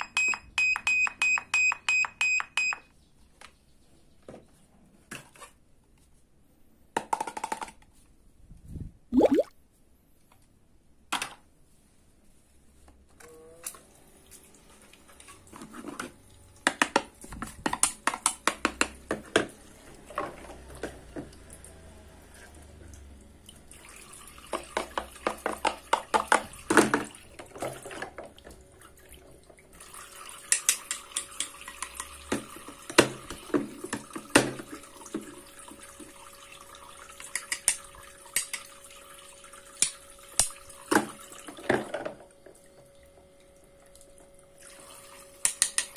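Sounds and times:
water trickling in sink: 0:09.2 - 0:09.5
faint steady hum: 0:37.8 - 0:45.6
plastic toy clicks and taps: 0:45.4 - 0:45.9.

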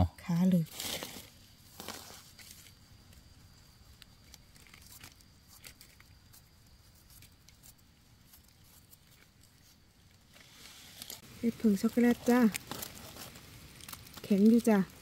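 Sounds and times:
small knife scraping dirt: 0:00.7 - 0:02.7.

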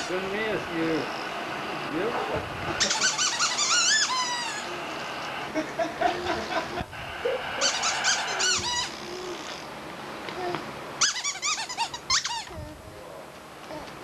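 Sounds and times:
baby squealing: 0:02.8 - 0:04.8, 0:07.6 - 0:09.7, 0:10.4 - 0:12.8
baby cooing and babbling: 0:08.9 - 0:09.7, 0:10.3 - 0:10.7, 0:12.4 - 0:12.9, 0:13.6 - 0:14.0.

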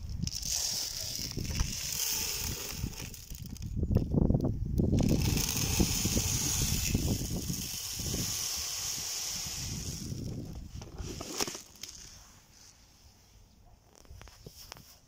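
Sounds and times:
granular fertilizer pouring into hopper: 0:00.2 - 0:03.6, 0:05.0 - 0:10.3.

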